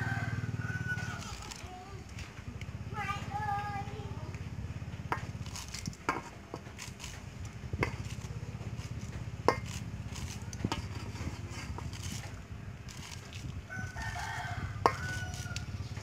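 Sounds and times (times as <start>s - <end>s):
steady low hum: 0.0s - 16.0s
knife scraping corn kernels: 5.1s - 16.0s.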